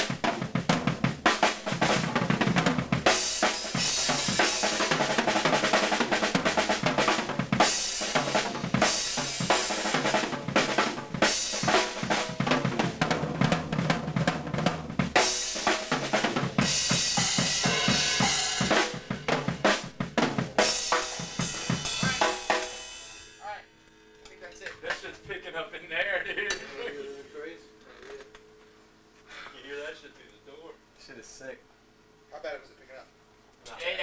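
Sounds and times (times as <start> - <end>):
snare and bass drum hits: 0.0 - 22.8.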